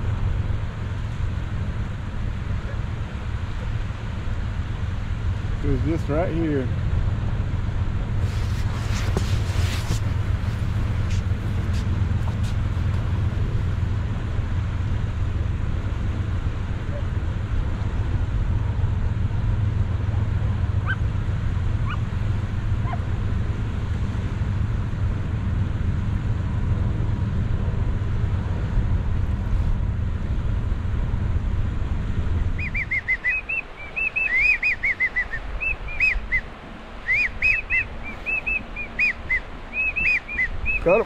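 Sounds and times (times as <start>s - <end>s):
high whistled chirps: 32.6s - 40.9s.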